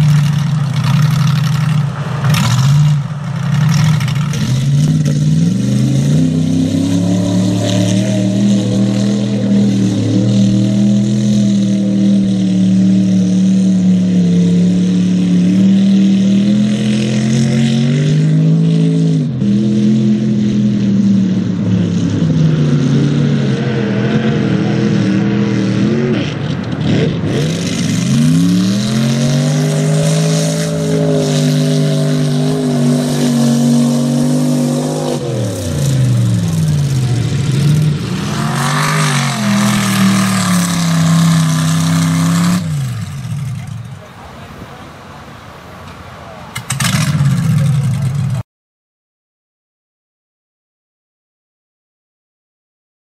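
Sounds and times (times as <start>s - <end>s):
truck engine revving hard: 0.0s - 48.4s.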